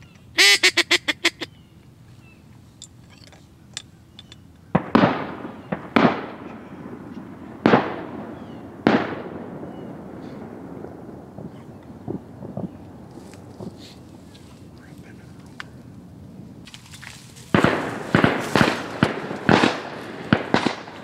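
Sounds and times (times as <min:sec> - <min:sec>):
duck quacks: 0:00.4 - 0:01.5
shotgun shots echoing: 0:04.7 - 0:12.8, 0:17.5 - 0:21.0.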